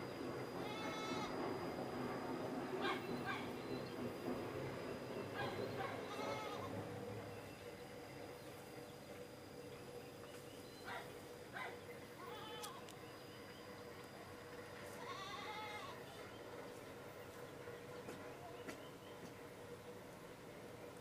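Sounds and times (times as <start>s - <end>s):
goat bleating: 0.6s - 1.3s, 6.0s - 6.7s, 12.2s - 12.8s, 15.0s - 16.0s.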